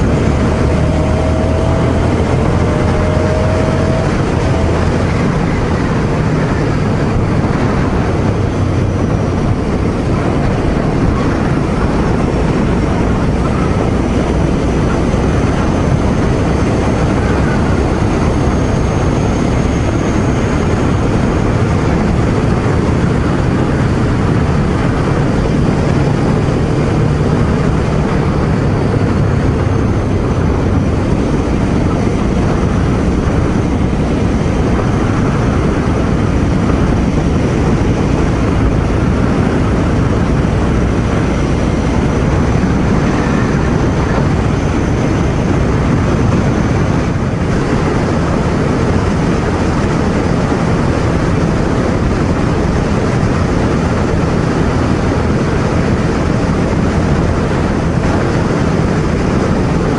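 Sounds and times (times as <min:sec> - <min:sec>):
motorcycle engine cruising: 0:00.0 - 0:59.9
wind noise on microphone: 0:00.0 - 0:59.9.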